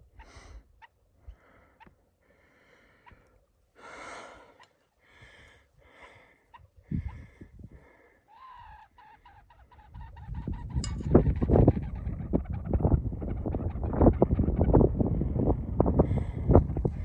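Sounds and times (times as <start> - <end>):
bird calling: 8.3 - 14.8.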